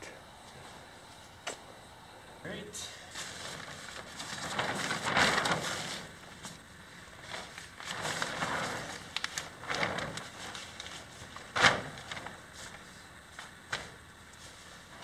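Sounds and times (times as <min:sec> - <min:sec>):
plastic sheet flapping: 0:03.1 - 0:15.0
plastic sheet rustling: 0:03.1 - 0:15.0.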